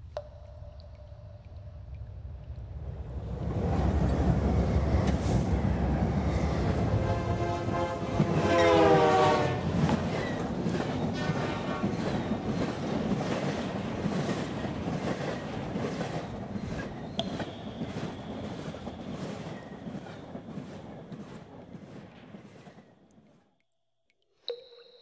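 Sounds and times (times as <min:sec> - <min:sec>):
train wheel clatter: 0:03.4 - 0:22.9
train horn: 0:06.2 - 0:10.4, 0:11.0 - 0:12.4.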